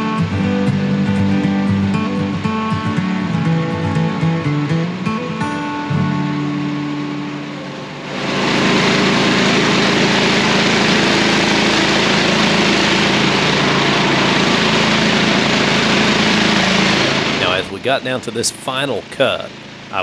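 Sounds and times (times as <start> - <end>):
music: 0.0 - 18.7
sawmill engine running: 0.0 - 20.0.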